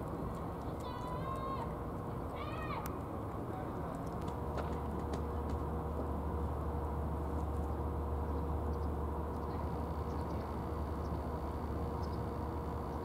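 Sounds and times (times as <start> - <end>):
faint constant hum: 0.0 - 13.0
low outdoor rumble: 0.0 - 13.0.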